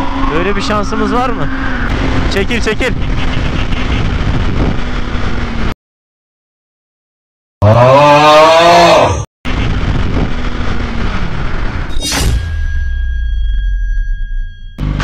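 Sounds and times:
wind rush: 0.0 - 5.7, 9.5 - 12.5.

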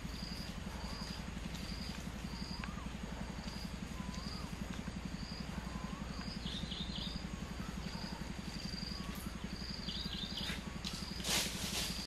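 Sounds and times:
insects trilling: 0.0 - 12.0
low pulsing hum: 0.0 - 12.0
soft low whistles: 2.2 - 4.7, 5.4 - 9.6.

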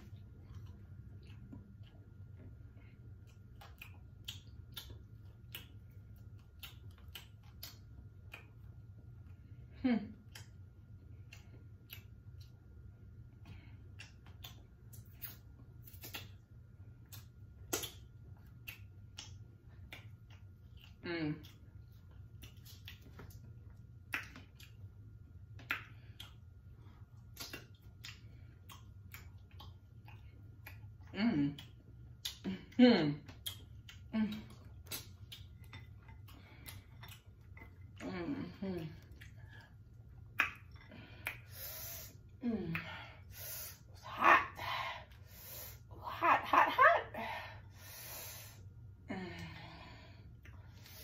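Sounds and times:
low steady hum: 0.0 - 51.0
mouth clicks and lip smacks: 3.1 - 9.4, 10.1 - 12.7, 13.4 - 32.5, 33.2 - 38.0, 38.9 - 43.6.

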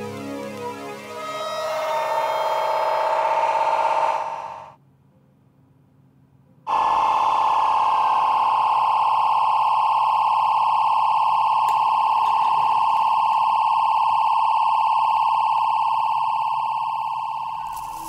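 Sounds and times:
high electronic tone: 0.0 - 4.8.

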